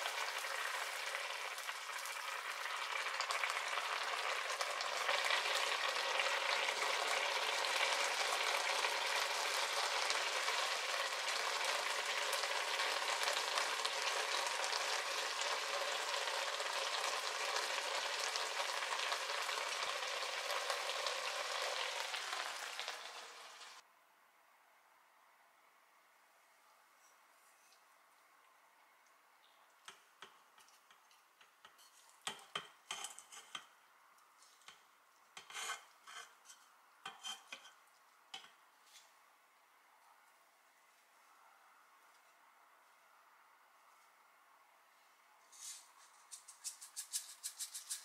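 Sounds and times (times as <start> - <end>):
food sizzling in frying pan: 0.0 - 23.8.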